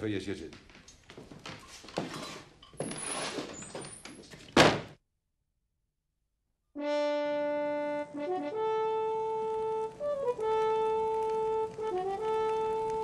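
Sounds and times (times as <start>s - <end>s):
brass instrument slow melody: 6.8s - 13.0s.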